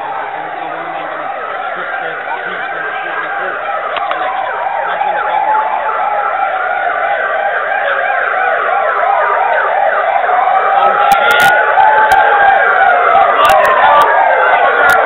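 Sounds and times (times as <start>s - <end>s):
emergency vehicle sirens: 0.0s - 15.0s.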